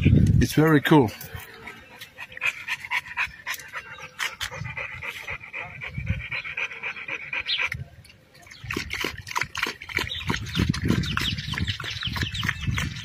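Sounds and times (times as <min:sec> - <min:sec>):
dog panting: 0:01.2 - 0:07.9.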